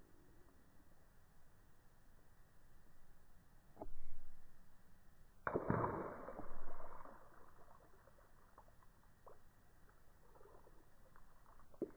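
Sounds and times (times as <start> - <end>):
water splashing into puddle: 5.4 - 11.9
water dripping: 5.5 - 11.9.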